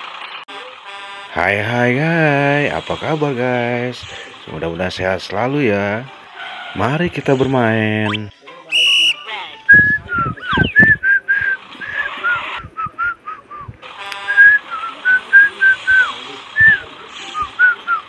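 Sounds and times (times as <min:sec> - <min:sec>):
person whistling a tune: 0:08.7 - 0:18.0
short electronic beep: 0:08.8 - 0:10.9.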